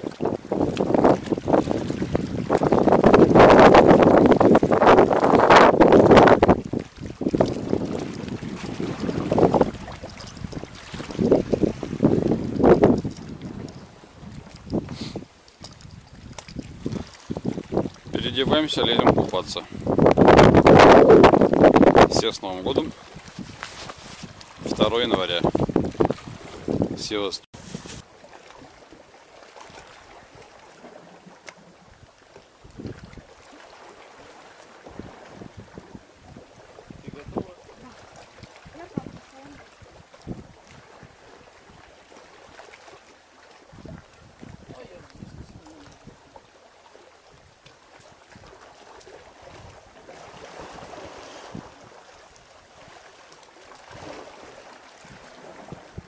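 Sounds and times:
wind noise on microphone: 0:00.0 - 0:28.0, 0:31.9 - 0:33.3, 0:34.8 - 0:41.9, 0:43.7 - 0:46.3, 0:49.4 - 0:52.0, 0:53.9 - 0:54.4, 0:55.0 - 0:56.0
sea washing on rocky shore: 0:00.0 - 0:56.0.

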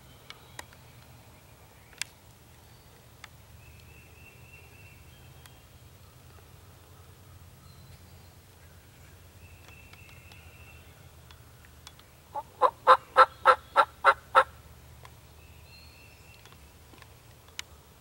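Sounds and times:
faint songbird chirps: 0:00.0 - 0:18.0
wild turkey calling: 0:12.3 - 0:14.6.

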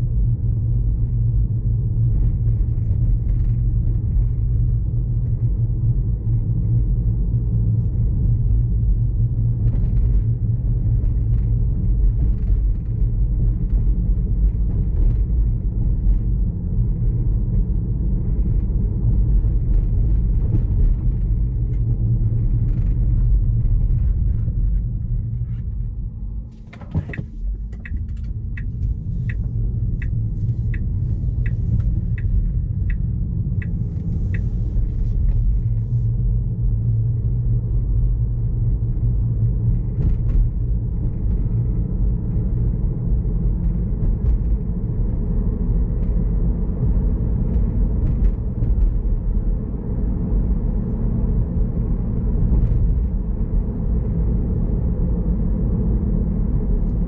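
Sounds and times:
tyre and road rumble: 0:00.0 - 0:57.0
turn signal ticking: 0:26.9 - 0:35.8.

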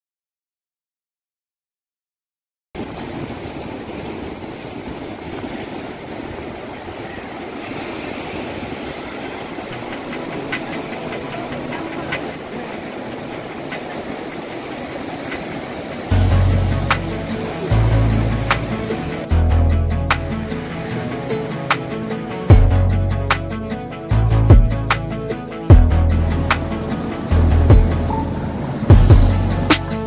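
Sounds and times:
surf breaking on rocky shore: 0:02.8 - 0:19.4, 0:20.1 - 0:22.5.

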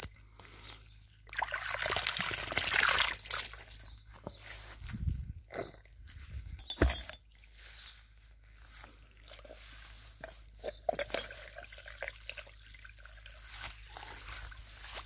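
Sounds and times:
water dripping from hose into grass: 0:01.2 - 0:03.8, 0:11.2 - 0:15.0.

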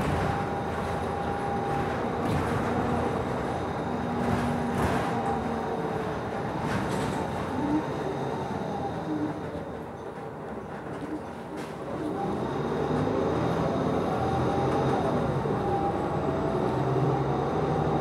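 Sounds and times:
bus engine and road rumble: 0:00.0 - 0:18.0.

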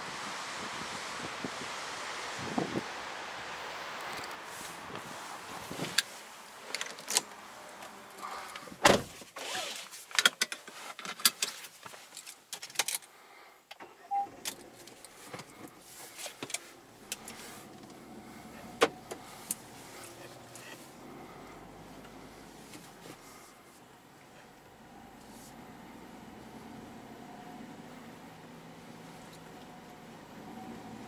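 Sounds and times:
car door shutting: 0:08.6 - 0:09.3, 0:18.4 - 0:20.8
car beep: 0:13.8 - 0:14.4.

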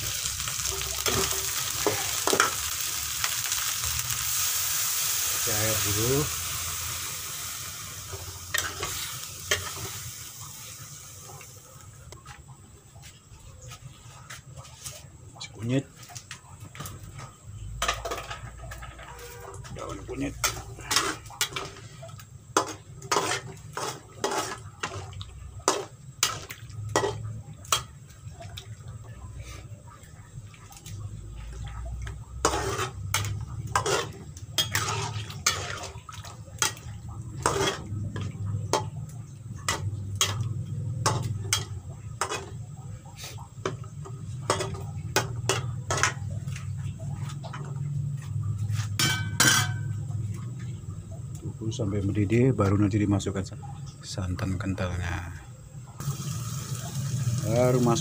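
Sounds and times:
metal spatula scraping a wok: 0:05.8 - 0:10.3, 0:17.9 - 0:22.0, 0:22.6 - 0:27.9, 0:32.4 - 0:36.0, 0:37.4 - 0:38.4, 0:48.2 - 0:49.9.

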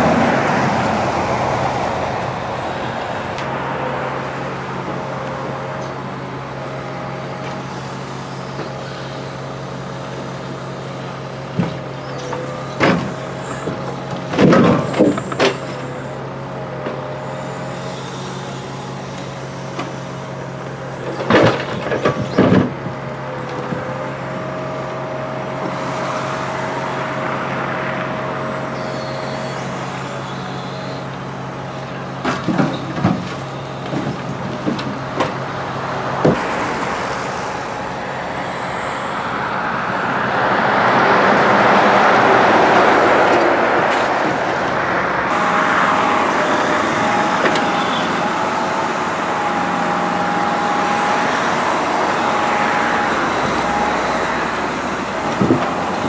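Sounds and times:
diesel engine running: 0:00.0 - 0:56.0
logs knocking and clunking: 0:32.2 - 0:35.4, 0:55.2 - 0:56.0.

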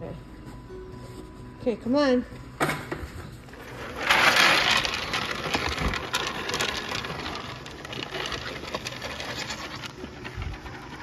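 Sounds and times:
pellets poured into trough: 0:03.5 - 0:11.0.

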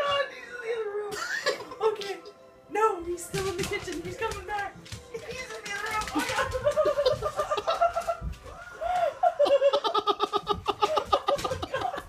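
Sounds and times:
high-pitched nervous giggling: 0:08.9 - 0:12.0.

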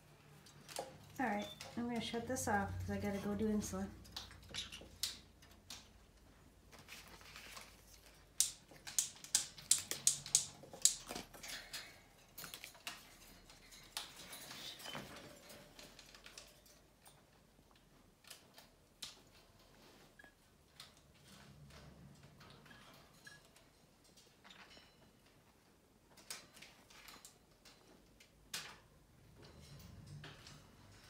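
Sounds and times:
parrots tapping on toys: 0:08.4 - 0:13.2.

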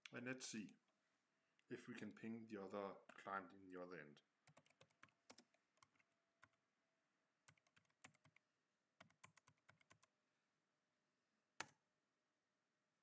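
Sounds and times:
faint keyboard typing: 0:03.0 - 0:03.3, 0:04.4 - 0:06.6, 0:07.4 - 0:10.2.

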